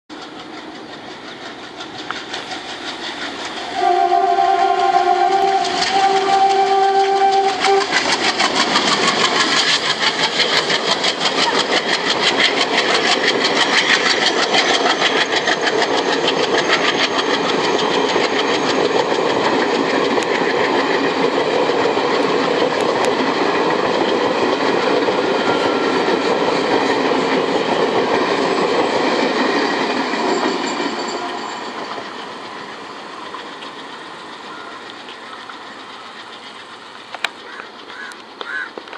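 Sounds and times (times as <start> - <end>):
train wheels clickety-clack: 0.1 - 38.9
locomotive horn blast: 3.7 - 8.0.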